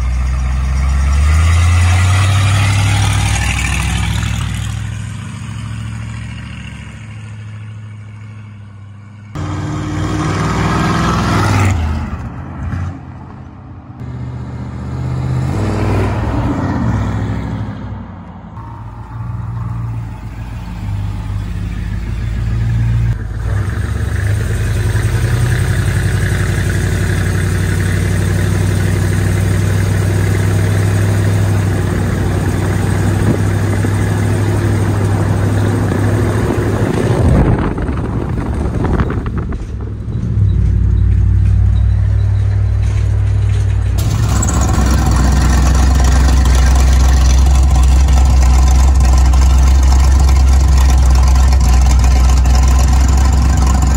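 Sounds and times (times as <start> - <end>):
engine revving: 0.0 - 13.1, 14.0 - 18.0, 18.6 - 53.9
engine exhaust running: 20.0 - 53.9.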